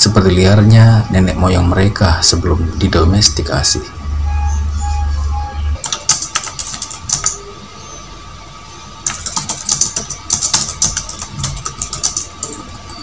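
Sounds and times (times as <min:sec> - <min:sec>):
rapid keyboard clicks: 0:05.8 - 0:07.4, 0:09.0 - 0:12.7.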